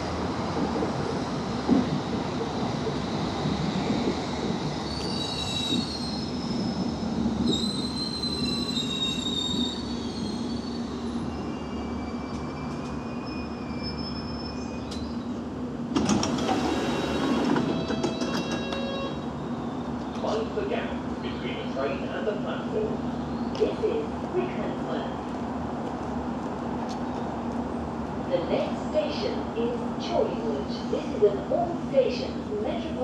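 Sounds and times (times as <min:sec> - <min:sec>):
train braking to a stop: 0:03.6 - 0:15.4, 0:16.0 - 0:20.5
wheel and brake squeals: 0:04.8 - 0:15.3, 0:16.2 - 0:20.4
door opening tones: 0:16.0 - 0:19.0.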